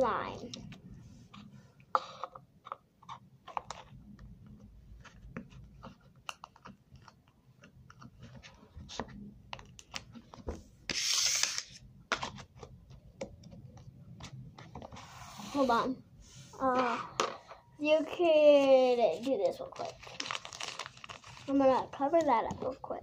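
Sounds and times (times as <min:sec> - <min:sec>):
rustling scrape: 0:14.9 - 0:16.7.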